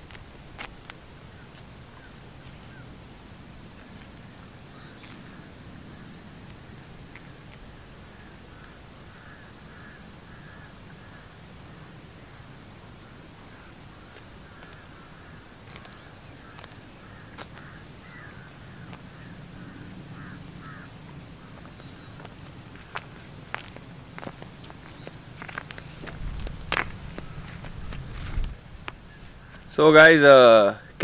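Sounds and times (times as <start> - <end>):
crows cawing: 1.4 - 2.9, 4.7 - 7.4, 8.1 - 12.5, 13.4 - 28.3, 29.0 - 30.0.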